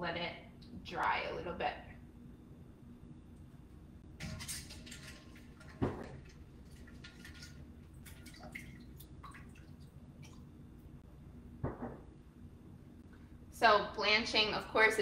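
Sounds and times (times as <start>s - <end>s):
water dripping into metal bowl: 4.7s - 10.5s
loud knock: 11.6s - 12.1s.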